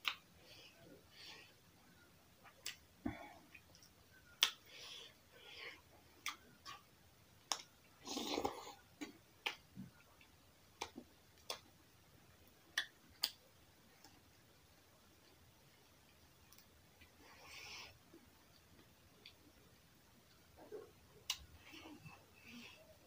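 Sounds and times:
lip smacks: 3.5s - 4.7s, 6.2s - 6.9s, 7.5s - 9.6s, 10.8s - 11.7s, 12.7s - 13.4s, 20.8s - 21.8s.

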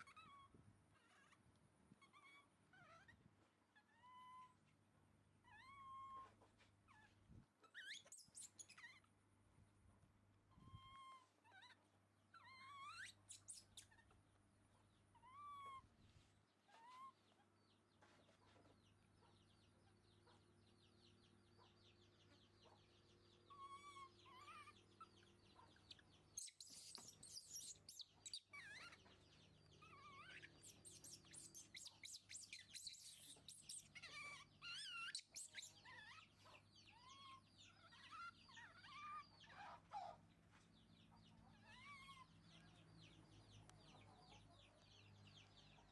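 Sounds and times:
baby monkeys squeaking: 0.0s - 1.4s, 2.0s - 3.2s, 3.8s - 4.6s, 5.4s - 9.1s, 10.5s - 14.2s, 15.1s - 15.9s, 16.7s - 17.2s, 23.4s - 40.2s, 41.0s - 43.0s.

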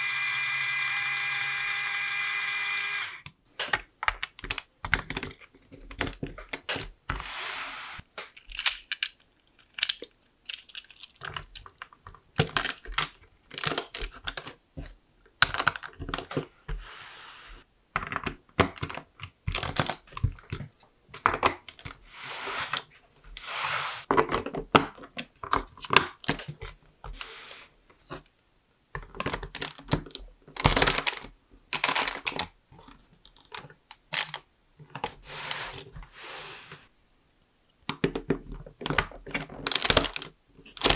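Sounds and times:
plastic bricks clicking and snapping: 3.2s - 7.0s, 8.2s - 16.4s, 18.0s - 22.0s, 28.9s - 35.1s, 37.8s - 40.9s.

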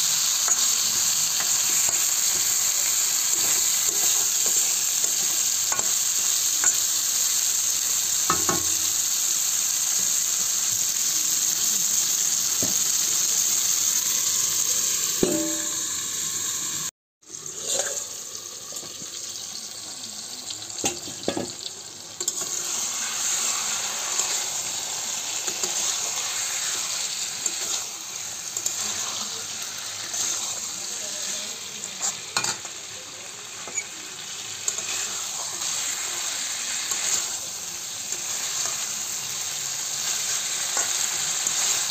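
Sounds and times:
curry sizzling in a pan: 0.0s - 41.9s
metal spatula scraping a pan: 17.6s - 18.0s, 28.6s - 31.4s, 34.6s - 37.4s.

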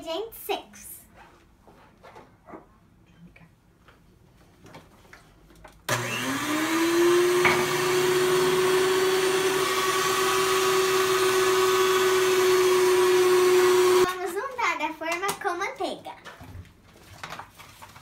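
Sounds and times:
electric hand mixer whining: 5.9s - 14.2s.

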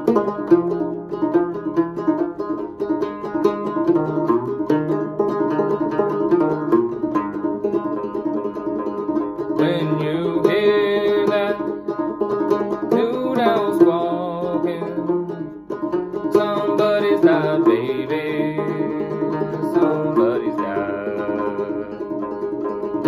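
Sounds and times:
banjo plucking: 0.0s - 23.0s
man singing: 9.5s - 11.9s, 12.6s - 15.6s, 16.2s - 22.5s.

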